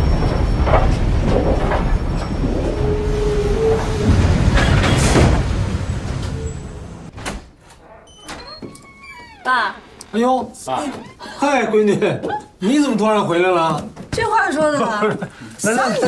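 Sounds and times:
passenger train rumbling on track: 0:00.0 - 0:07.1
wheels clanking: 0:00.0 - 0:07.1
train wheel squeal: 0:01.6 - 0:05.2.

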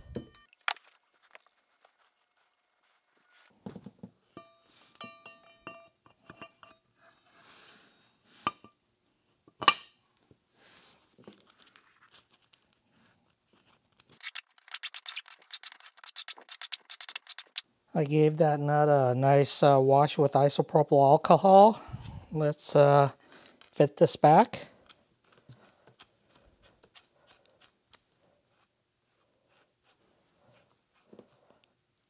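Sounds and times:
metal ringing ping: 0:04.4 - 0:06.0
metal clinks: 0:04.4 - 0:06.8.

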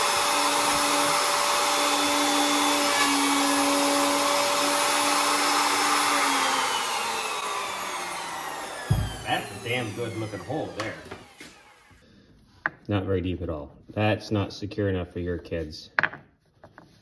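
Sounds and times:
electric router whining: 0:00.0 - 0:12.0.

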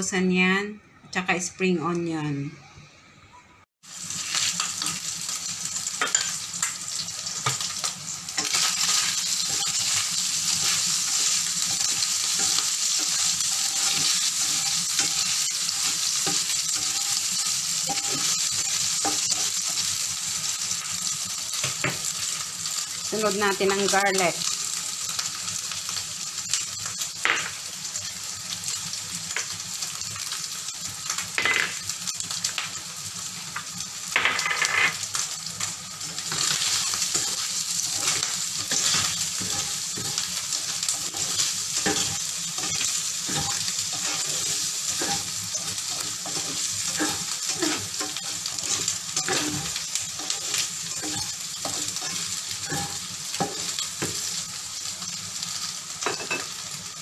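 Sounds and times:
meat sizzling in frying pan: 0:03.8 - 0:57.0
spatula scraping and tapping pan: 0:08.4 - 0:19.8, 0:36.3 - 0:54.3.

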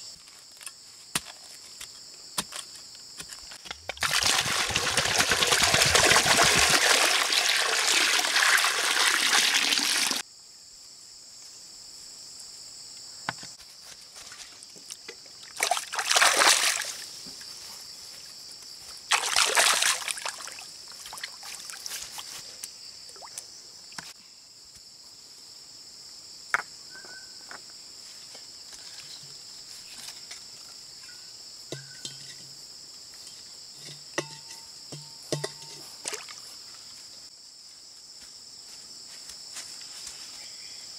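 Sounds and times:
insects chirring: 0:00.0 - 0:40.9
water pouring into pond: 0:03.9 - 0:10.2, 0:15.5 - 0:17.0, 0:19.1 - 0:21.7
water splashing: 0:03.9 - 0:10.2, 0:15.5 - 0:17.1, 0:19.1 - 0:21.8.

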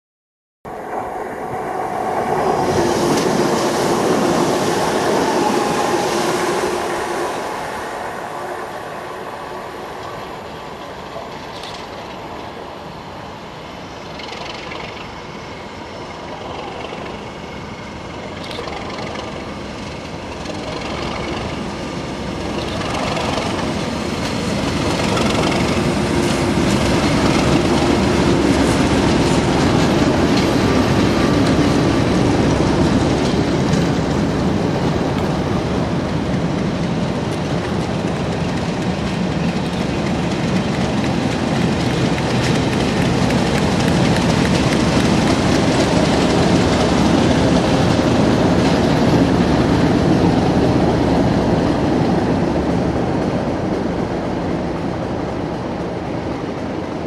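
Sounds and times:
diesel locomotive engine: 0:00.7 - 0:57.0
train wheels clattering over rails: 0:02.0 - 0:13.0, 0:13.8 - 0:57.0.

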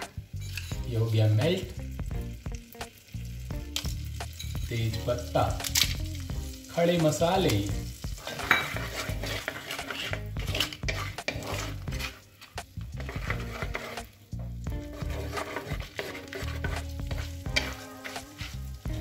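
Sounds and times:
spices sizzling in butter: 0:00.0 - 0:19.0
wooden spatula scraping pot: 0:08.1 - 0:19.0.

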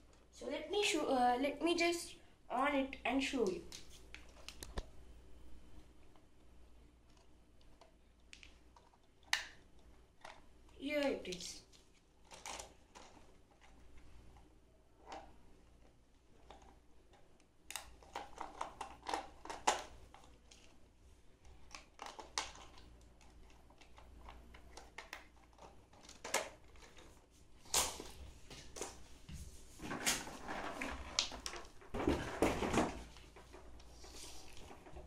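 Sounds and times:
plastic toy car clicks: 0:12.2 - 0:13.8, 0:16.4 - 0:20.7, 0:21.5 - 0:27.1.

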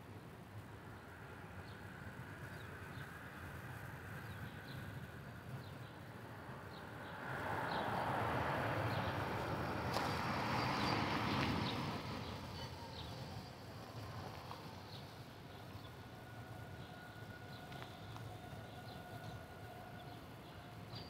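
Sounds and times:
road vehicle passing: 0:06.0 - 0:20.9.

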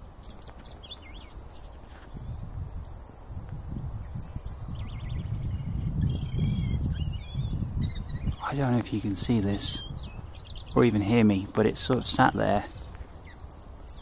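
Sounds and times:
robins twittering: 0:00.0 - 0:14.0.

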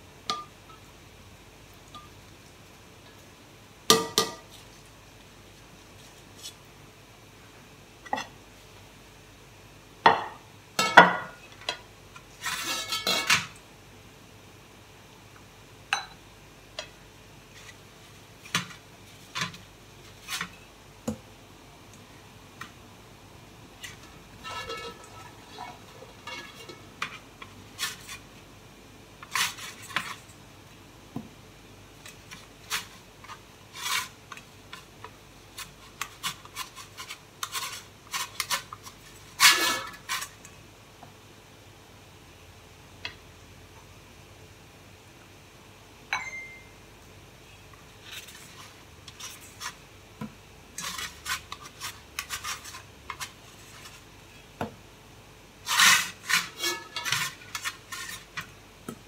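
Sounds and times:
spatula scraping metal pan: 0:12.4 - 0:13.4, 0:24.4 - 0:27.2, 0:39.3 - 0:40.4, 0:50.8 - 0:53.9, 0:55.6 - 0:58.5
metal pan clinking: 0:24.4 - 0:25.2.

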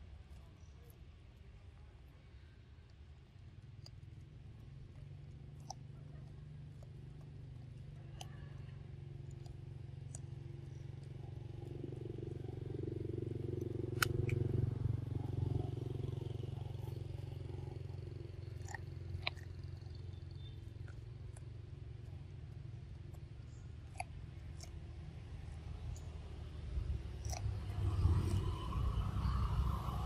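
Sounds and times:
monkey chewing corn clicks: 0:02.8 - 0:30.0
low engine drone: 0:06.2 - 0:30.0.

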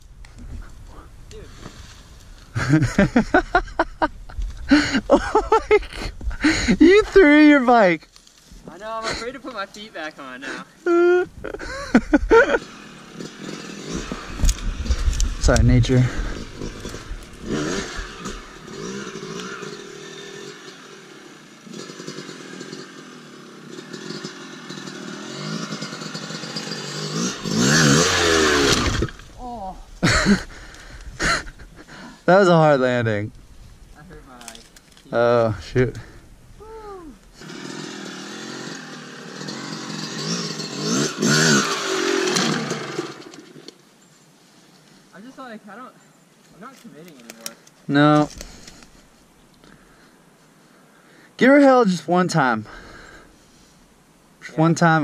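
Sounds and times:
dirt bike engine revving: 0:02.6 - 0:04.0, 0:04.7 - 0:08.0, 0:10.4 - 0:32.0, 0:37.1 - 0:43.7.

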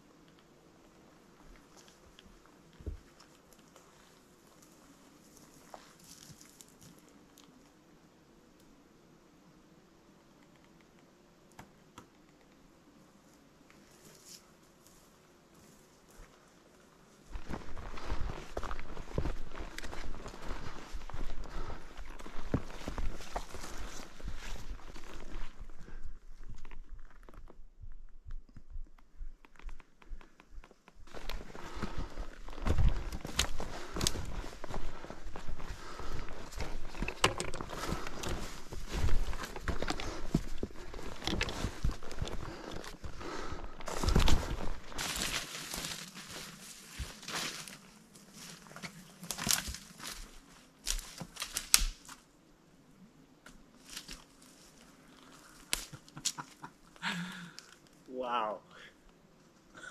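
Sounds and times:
footsteps on forest trail: 0:01.5 - 0:07.0, 0:14.0 - 0:52.2, 0:53.5 - 0:57.8.

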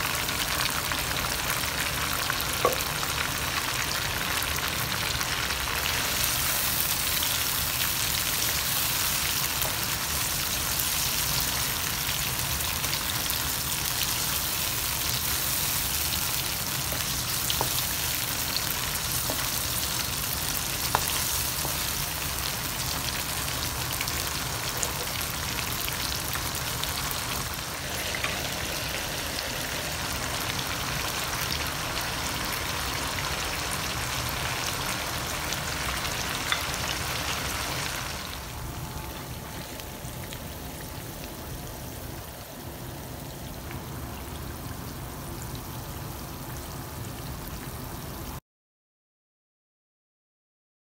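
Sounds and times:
food sizzling in oil: 0:00.0 - 0:38.7.

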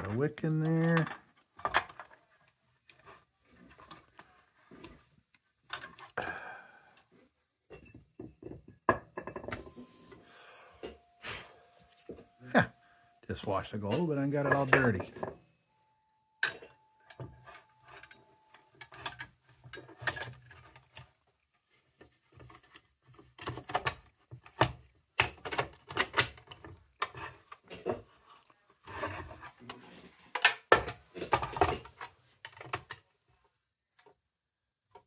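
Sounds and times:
lantern parts clicking and clattering: 0:00.0 - 0:06.2, 0:13.3 - 0:15.4, 0:16.4 - 0:34.3.

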